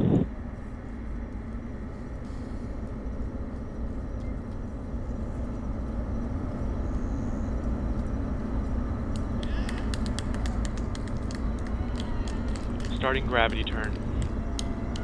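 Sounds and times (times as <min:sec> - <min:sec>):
rocket engines rumbling: 0:00.0 - 0:15.0.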